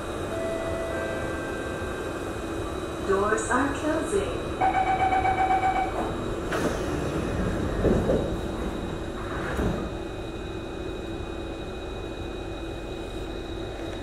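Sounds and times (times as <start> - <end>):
train door warning chime: 0.2 - 2.6, 4.6 - 6.2
sliding doors shutting: 6.0 - 10.1.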